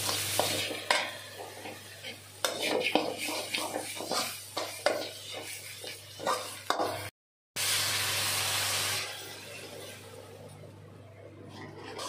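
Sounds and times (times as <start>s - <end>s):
water hissing in hot pan: 0.0s - 10.2s
masala sizzling: 0.0s - 10.7s
metal spatula scraping pan: 0.1s - 7.1s, 11.5s - 12.0s.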